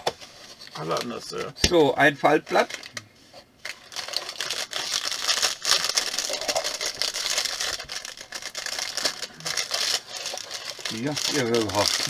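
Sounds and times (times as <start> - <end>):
packaging rustling and crinkling: 3.6 - 12.0.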